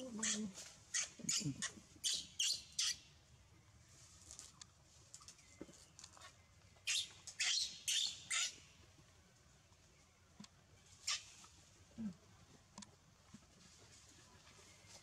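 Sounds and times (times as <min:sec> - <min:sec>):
baby monkey squeaking: 0:00.0 - 0:03.0, 0:06.9 - 0:08.6, 0:11.0 - 0:11.3.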